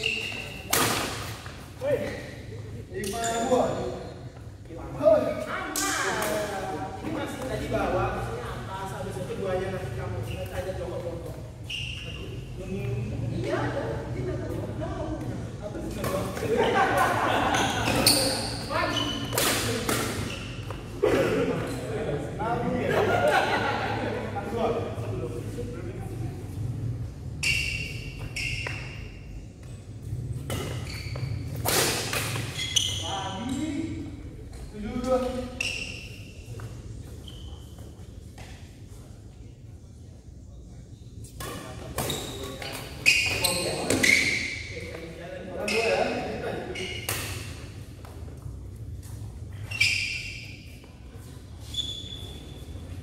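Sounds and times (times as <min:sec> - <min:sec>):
shoes squeaking on court floor: 0:00.0 - 0:04.7, 0:09.7 - 0:13.4, 0:17.3 - 0:21.0, 0:27.2 - 0:39.0, 0:41.2 - 0:53.0
racket hitting shuttlecock: 0:00.6 - 0:01.4, 0:19.2 - 0:20.3.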